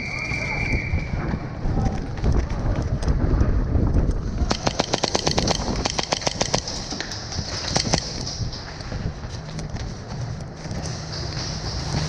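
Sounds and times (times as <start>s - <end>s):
rapid airsoft gunfire: 4.5s - 8.6s.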